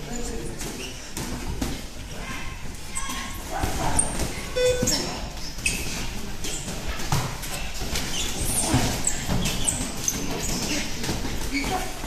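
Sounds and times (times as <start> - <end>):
sneakers squeaking on canvas: 2.9 - 12.0.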